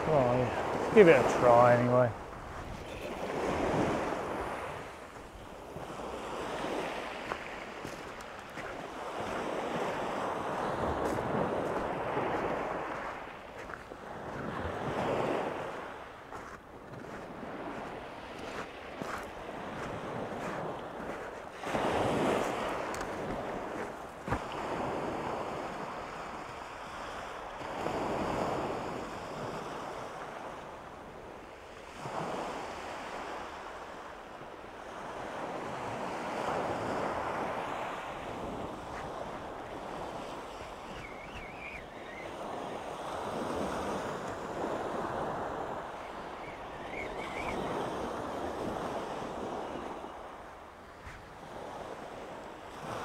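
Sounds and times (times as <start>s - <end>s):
wind buffeting microphone: 0.0s - 25.8s.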